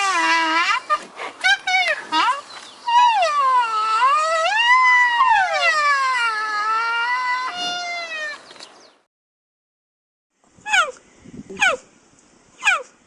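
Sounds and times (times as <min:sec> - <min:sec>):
rhinoceros squealing: 0:00.0 - 0:08.5.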